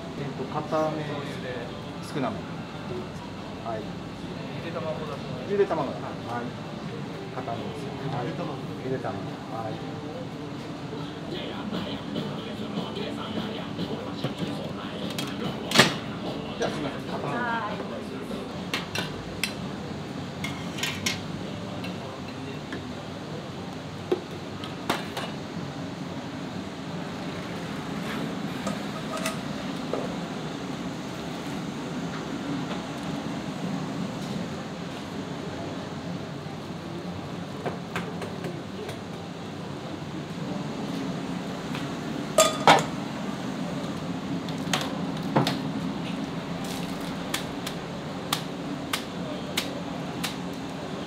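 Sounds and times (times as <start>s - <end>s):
kitchen ventilation hum: 0.0s - 51.0s
tableware clinking: 42.4s - 42.9s.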